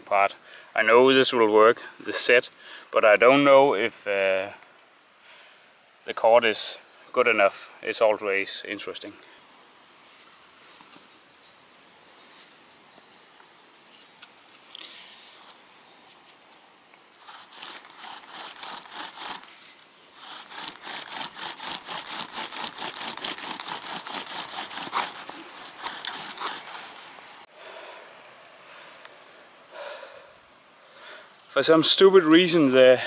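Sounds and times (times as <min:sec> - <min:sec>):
bow drill spindle grinding wood: 0:17.2 - 0:27.4.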